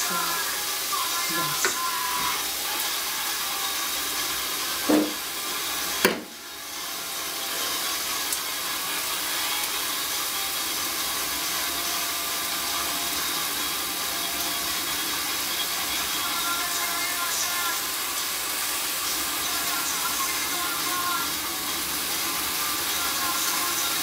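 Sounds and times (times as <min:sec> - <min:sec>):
food sizzling in oil: 0:00.0 - 0:24.0
sharp knocks: 0:04.9 - 0:05.2, 0:06.0 - 0:06.4.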